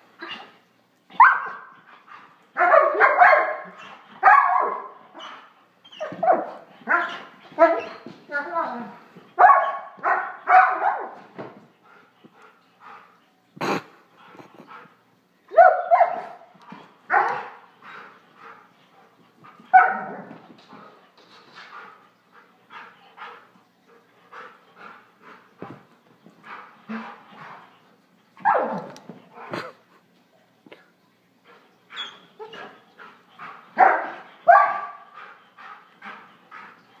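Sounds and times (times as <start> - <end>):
dog barking: 1.2 - 1.6, 2.6 - 4.9, 9.4 - 11.2, 15.5 - 16.4, 17.1 - 17.5, 33.8 - 35.0.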